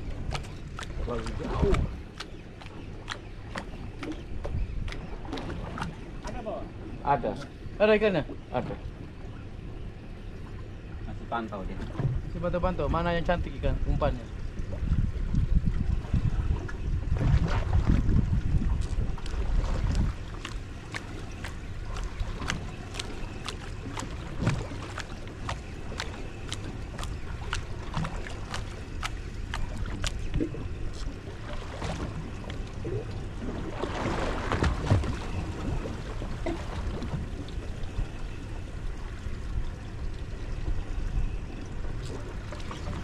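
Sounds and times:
water splashing: 0.0 - 6.8, 15.8 - 43.0
water lapping against boat hull: 0.0 - 43.0
wind rumble on microphone: 0.0 - 43.0.

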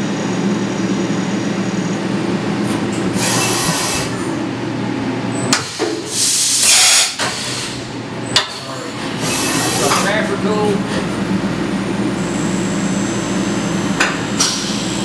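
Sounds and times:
machine hum: 0.0 - 6.2, 7.4 - 15.0
loud bursts of hiss: 5.6 - 7.9
high whine: 7.6 - 15.0.

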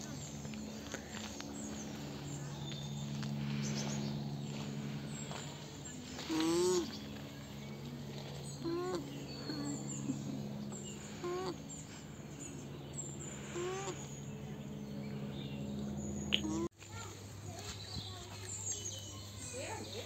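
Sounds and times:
alpacas humming: 0.0 - 16.7
steady low drone: 0.0 - 16.7
bird chirps: 1.5 - 16.7.

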